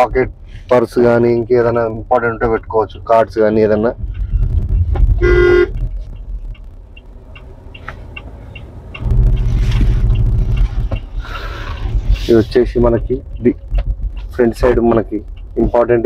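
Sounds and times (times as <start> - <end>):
car driving rumble: 0.0 - 16.0
vehicle horn toot: 5.2 - 5.8.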